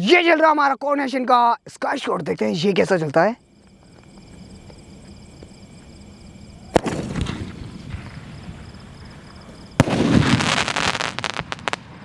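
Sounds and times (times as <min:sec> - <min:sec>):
firework bangs: 0:06.6 - 0:12.0
firework crackles: 0:06.6 - 0:12.0.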